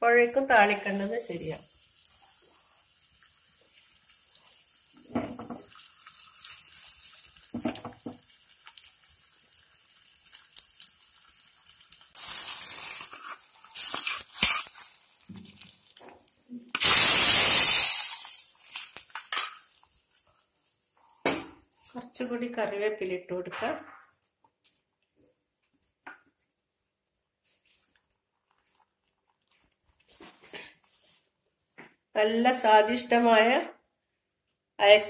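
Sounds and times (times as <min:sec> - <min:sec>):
faint frying in oil: 0:00.4 - 0:22.5
loud hissing sizzle: 0:11.7 - 0:15.3, 0:16.8 - 0:18.7.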